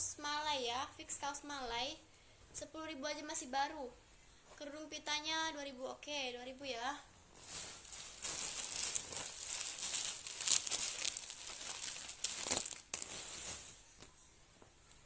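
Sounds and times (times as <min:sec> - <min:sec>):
plastic bag crinkling: 0:07.3 - 0:14.1.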